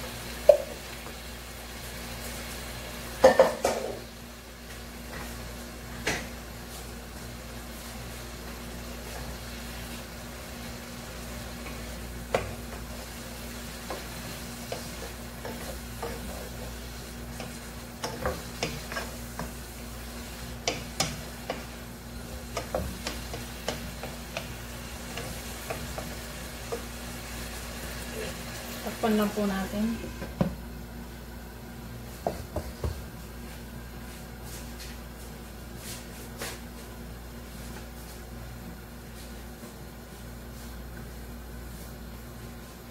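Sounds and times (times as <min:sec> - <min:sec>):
food sizzling in pot: 0:00.0 - 0:30.4.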